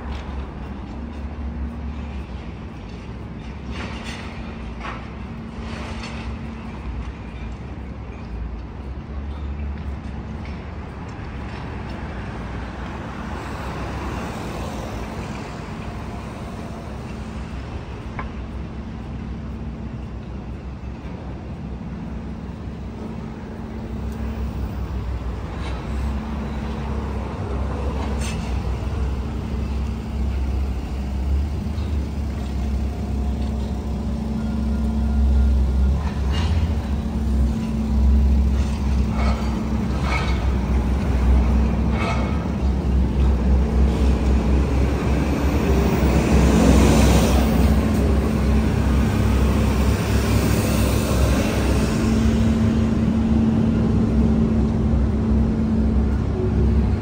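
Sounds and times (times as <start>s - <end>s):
cars and buses passing: 0.0s - 57.0s.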